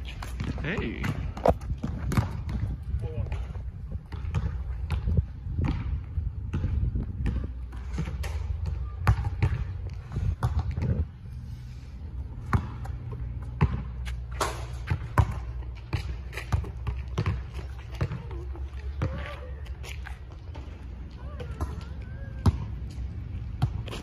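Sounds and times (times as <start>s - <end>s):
basketball bouncing on asphalt: 0.0s - 24.0s.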